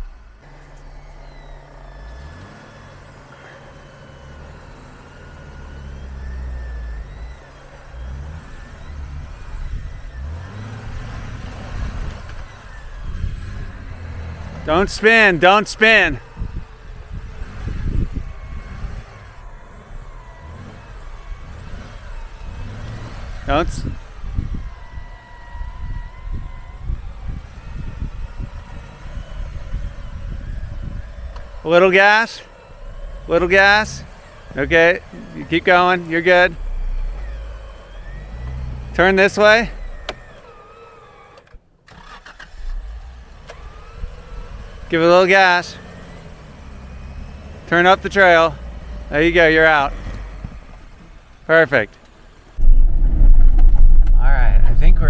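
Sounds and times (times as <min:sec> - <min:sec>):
motor whine: 0:00.0 - 0:41.6, 0:42.3 - 0:55.0
car engine running: 0:00.0 - 0:55.0
vehicle winch pulling under load: 0:00.0 - 0:55.0
low rumbling and buffeting: 0:06.0 - 0:40.5, 0:52.0 - 0:55.0.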